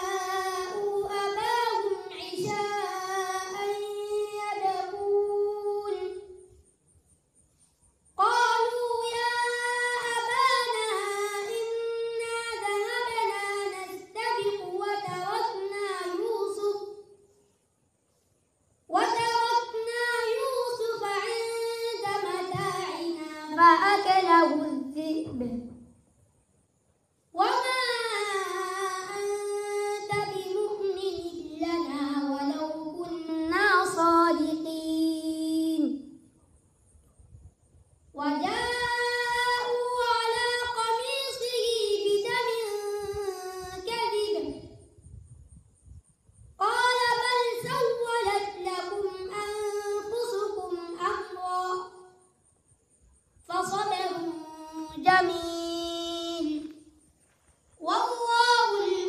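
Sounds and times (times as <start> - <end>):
boy chanting: 0.0 - 6.7, 8.1 - 17.2, 18.9 - 25.8, 27.3 - 36.2, 38.1 - 44.9, 46.6 - 52.2, 53.4 - 56.9, 57.8 - 59.0.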